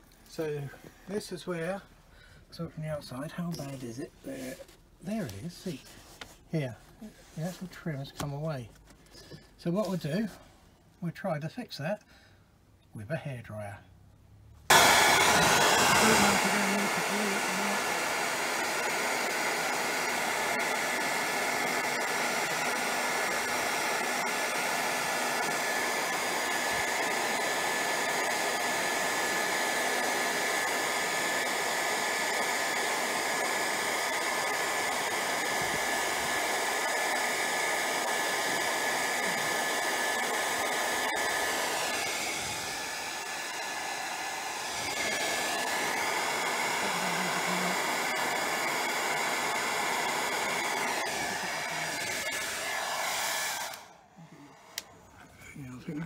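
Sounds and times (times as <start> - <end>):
hairdryer blowing: 14.7 - 55.2.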